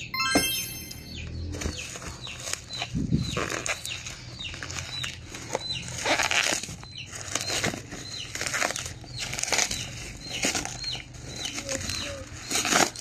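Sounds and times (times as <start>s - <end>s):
short high chirps: 0.0s - 1.3s
bubble wrap crinkling: 3.4s - 13.0s.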